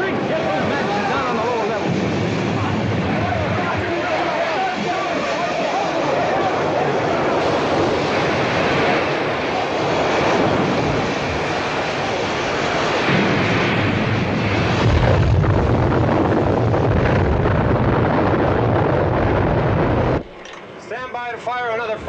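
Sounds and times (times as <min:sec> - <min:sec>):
deep rumble: 0:00.0 - 0:05.3, 0:07.1 - 0:20.4.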